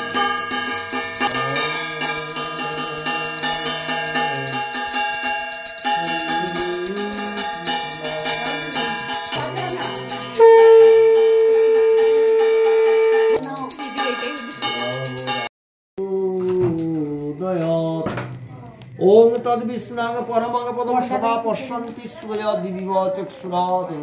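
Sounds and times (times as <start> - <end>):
hand bell rung rapidly: 0.0 - 15.5
loud steady tone: 0.0 - 15.5
melodic music: 0.0 - 15.5.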